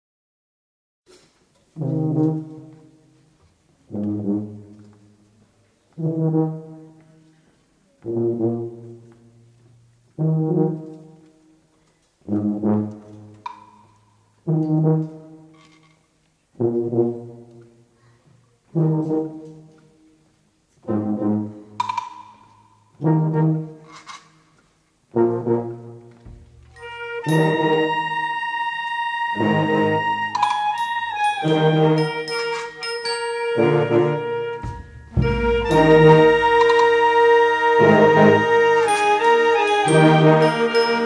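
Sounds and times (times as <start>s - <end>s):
brass higher note: 26.7s - 41.0s
brass low sustained chords: 33.6s - 41.0s.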